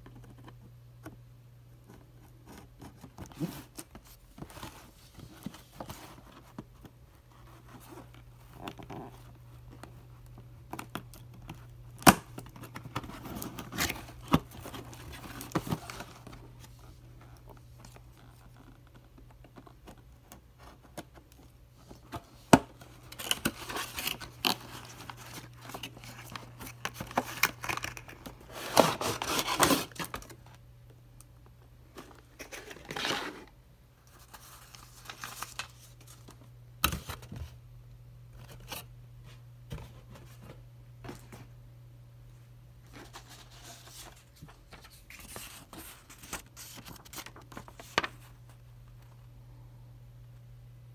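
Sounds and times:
cardboard packaging rustling and tearing: 2.3s - 20.0s, 21.9s - 30.6s, 31.9s - 37.4s, 42.9s - 48.6s.

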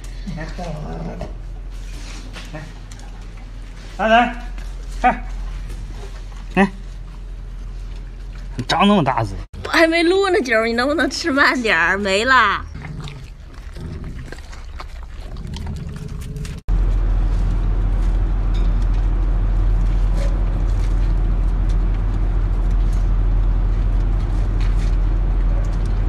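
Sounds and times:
dog licking and gnawing: 12.7s - 16.7s
dog chewing crunchy food: 12.7s - 26.0s
loud low rumble: 12.7s - 26.0s.

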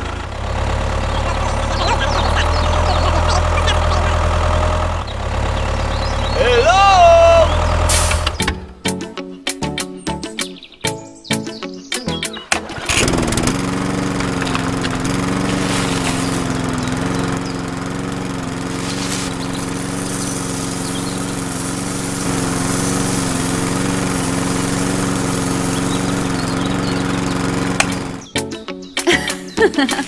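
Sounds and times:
small electric motor humming: 12.9s - 28.3s.

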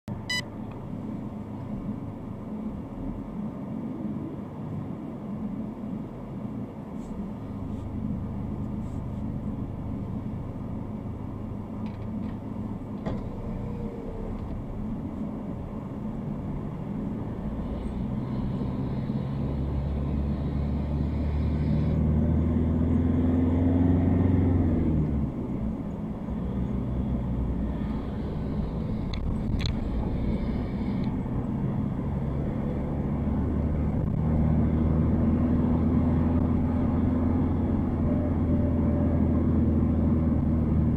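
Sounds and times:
car engine: 0.1s - 40.9s
road noise: 0.1s - 40.9s.

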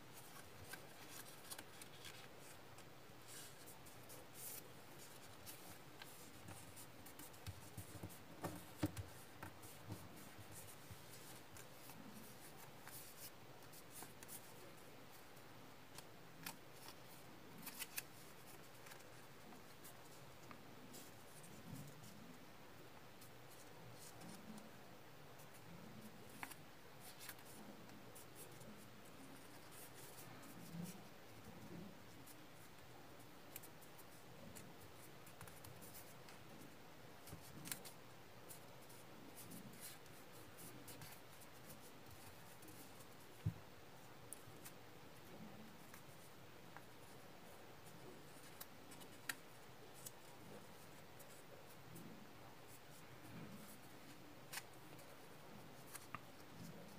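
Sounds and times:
paper rustling and crinkling: 0.1s - 14.6s, 15.9s - 22.1s.

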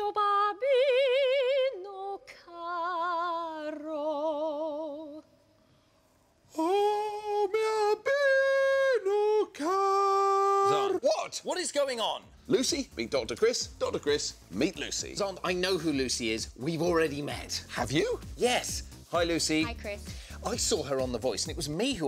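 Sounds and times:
woman singing opera: 0.0s - 5.2s.

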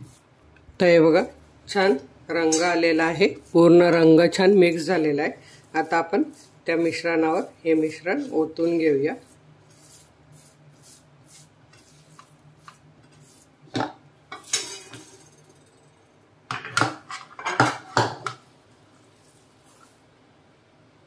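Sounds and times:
spatula scraping a pan: 1.1s - 15.5s
kitchenware clattering: 2.4s - 2.9s, 13.7s - 18.4s.

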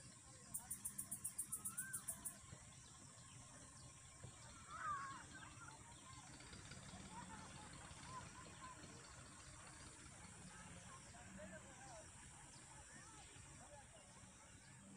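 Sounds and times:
bird wavering call: 0.6s - 2.4s
faint short bird chirps: 0.6s - 2.4s.

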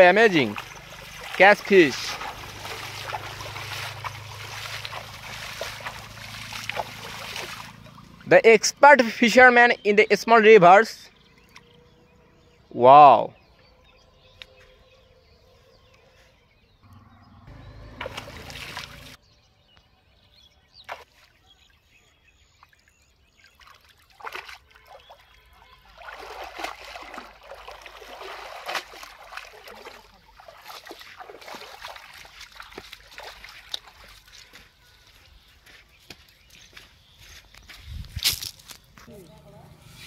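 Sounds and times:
water splashing and dripping: 0.0s - 8.2s, 17.9s - 19.2s, 22.6s - 35.3s.

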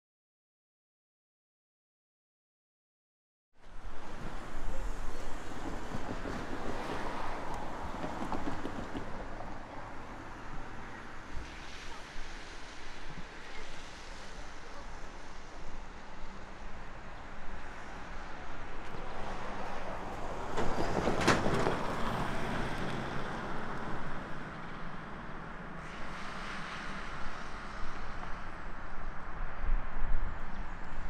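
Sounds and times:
traffic noise: 3.6s - 31.0s
vehicle passing close by: 19.2s - 28.6s
wind on microphone: 25.8s - 31.0s.

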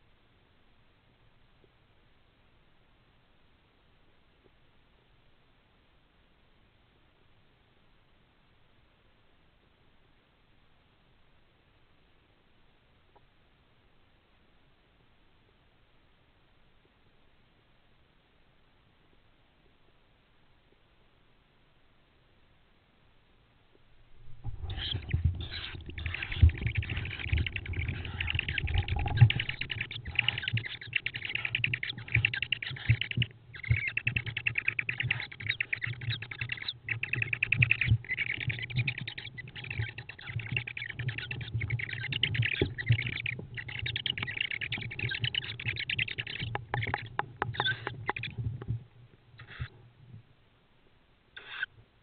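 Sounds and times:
owl chicks rasping calls: 24.3s - 48.4s, 49.4s - 49.7s, 51.4s - 51.7s.

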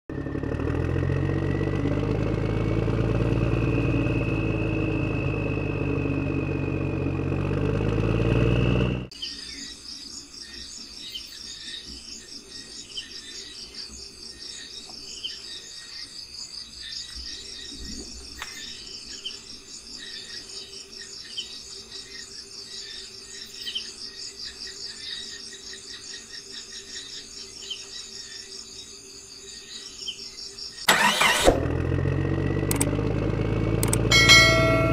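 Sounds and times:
engine running: 0.1s - 9.1s, 30.9s - 34.9s.

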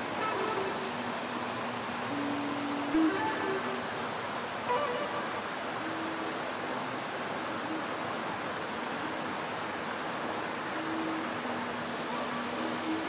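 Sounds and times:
electric guitar notes: 0.0s - 6.2s
high insect-like whine: 0.0s - 13.0s
stream water rushing over rocks: 0.0s - 13.0s.

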